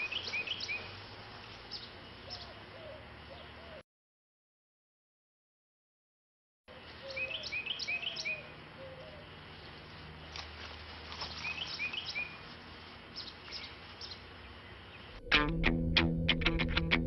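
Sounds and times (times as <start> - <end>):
birds chirping: 0.0 - 3.8, 6.7 - 15.4.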